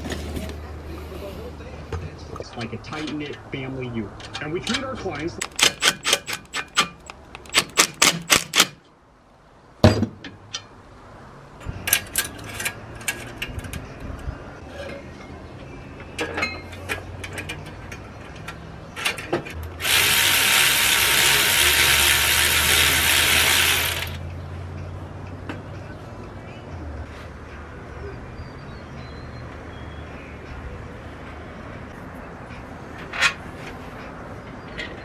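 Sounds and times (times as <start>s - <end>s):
cordless electric ratchet running: 19.7s - 24.2s.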